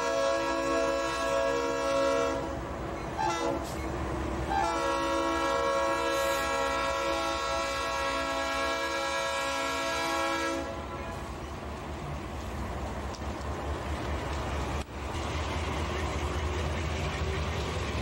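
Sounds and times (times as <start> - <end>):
locomotive air horn chord: 0.0 - 2.6, 3.2 - 3.8, 4.5 - 11.3
locomotive rumble: 0.0 - 18.0.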